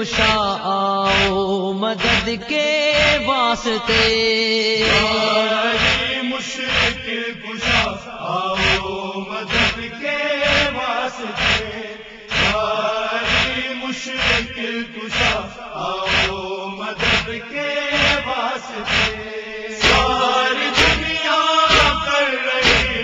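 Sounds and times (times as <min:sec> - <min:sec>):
men chanting: 0:00.0 - 0:23.0
hands striking chests: 0:19.8 - 0:20.2, 0:20.8 - 0:22.0, 0:22.6 - 0:23.0.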